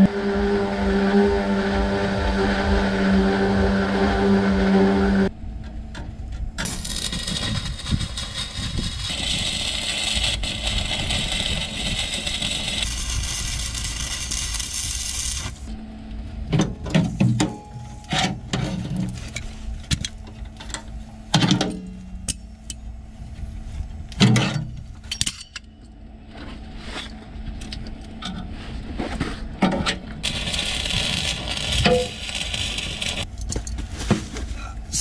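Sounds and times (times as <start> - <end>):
steady motor hum: 0.0 - 16.9
welding arc crackling and hissing: 6.6 - 15.7, 30.2 - 33.3.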